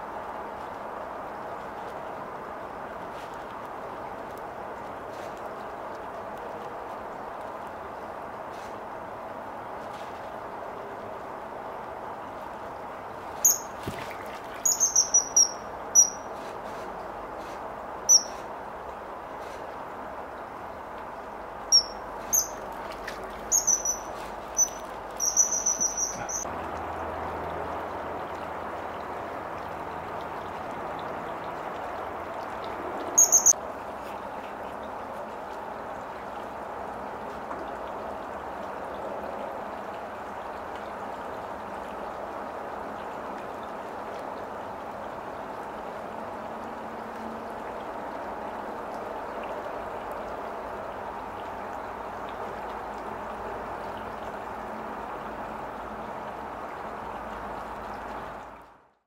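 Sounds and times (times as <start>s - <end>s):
running water rushing: 0.0s - 58.9s
kingfisher shrill piping calls: 13.4s - 13.8s, 14.6s - 16.3s, 18.1s - 18.4s, 21.7s - 22.6s, 23.5s - 26.4s, 33.2s - 33.5s.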